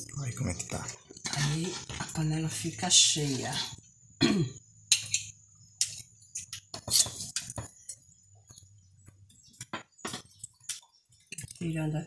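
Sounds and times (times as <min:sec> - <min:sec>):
metal spoons clinking: 0:04.9 - 0:08.0.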